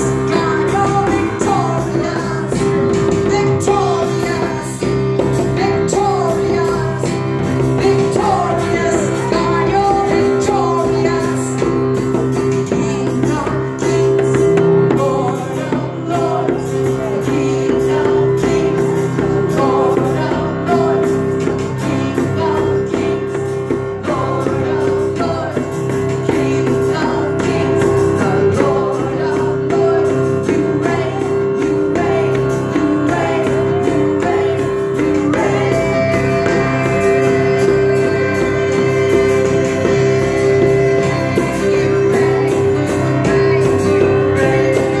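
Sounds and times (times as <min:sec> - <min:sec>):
drums: 0:00.0 - 0:45.0
guitar: 0:00.0 - 0:45.0
voices singing: 0:00.0 - 0:45.0.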